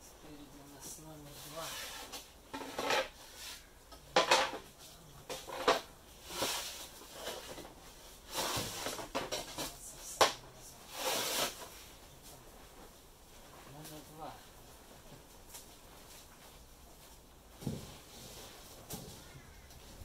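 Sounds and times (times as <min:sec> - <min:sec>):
wooden panels sliding and scraping: 0:01.3 - 0:12.0.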